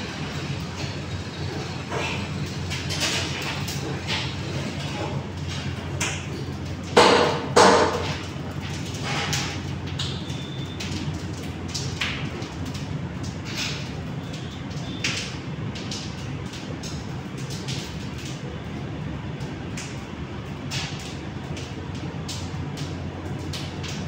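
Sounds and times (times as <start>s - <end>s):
loud knocks: 7.0s - 8.1s.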